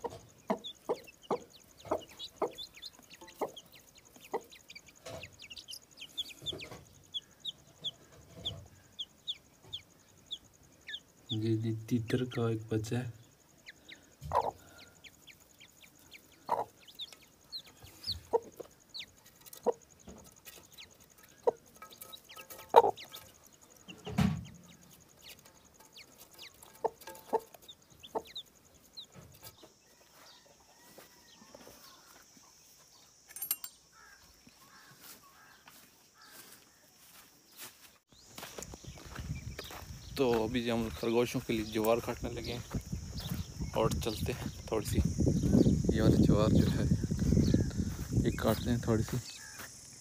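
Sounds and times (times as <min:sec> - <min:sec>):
hen clucking: 0:00.0 - 0:13.0, 0:13.6 - 0:31.7
chicks peeping: 0:00.0 - 0:33.1, 0:34.1 - 0:50.0.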